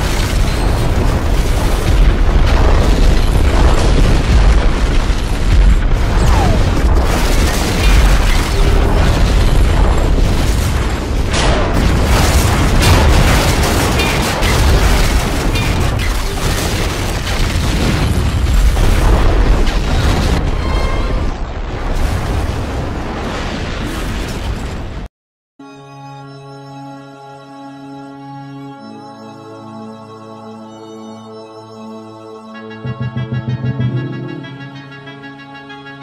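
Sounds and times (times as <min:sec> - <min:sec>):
deep rumble: 0:00.0 - 0:16.0
booming explosion blasts: 0:00.0 - 0:25.1.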